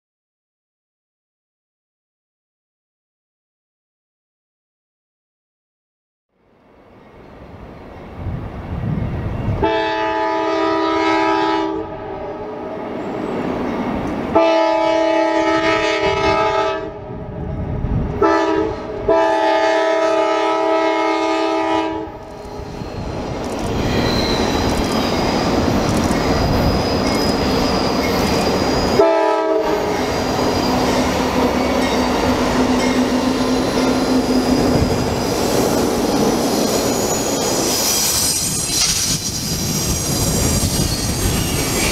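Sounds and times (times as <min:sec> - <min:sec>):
locomotive air horn blasts: 0:09.6 - 0:12.8, 0:14.3 - 0:17.1, 0:18.2 - 0:22.2, 0:29.0 - 0:30.0
locomotive engines and wheels rumbling: 0:11.8 - 0:14.4, 0:22.0 - 0:41.9.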